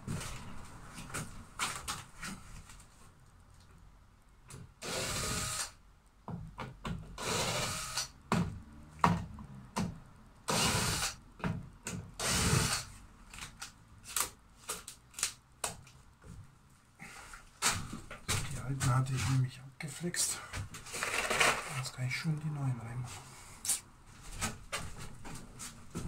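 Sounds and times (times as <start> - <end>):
cordless drill running: 4.8 - 5.8, 7.2 - 8.1, 10.5 - 11.2, 12.2 - 12.9.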